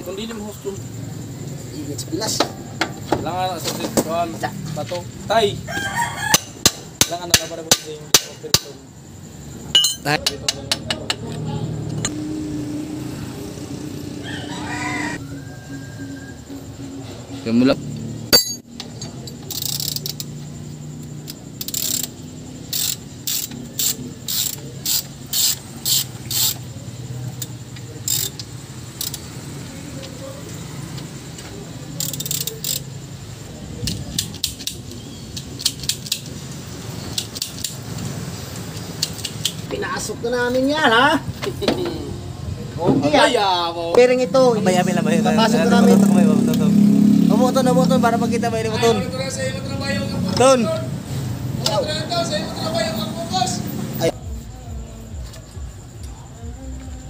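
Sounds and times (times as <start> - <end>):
metal tool tapping on metal: 9.8 - 11.2, 18.3 - 18.8
roller bearing metallic clicks: 18.3 - 26.7, 31.0 - 33.0, 33.8 - 36.4, 37.0 - 39.7.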